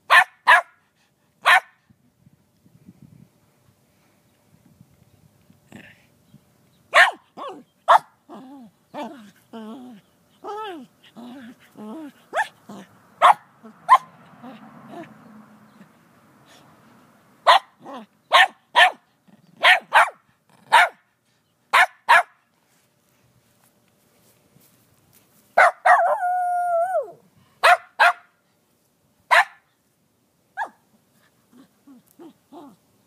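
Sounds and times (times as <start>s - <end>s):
dog barking: 0.1s - 0.8s, 1.4s - 1.8s, 6.9s - 8.1s, 12.4s - 12.6s, 13.2s - 14.1s, 17.4s - 19.0s, 19.6s - 21.0s, 21.7s - 22.4s, 25.6s - 26.2s, 27.6s - 28.3s, 29.3s - 29.6s, 30.6s - 30.8s
dog whining howl: 26.0s - 27.2s.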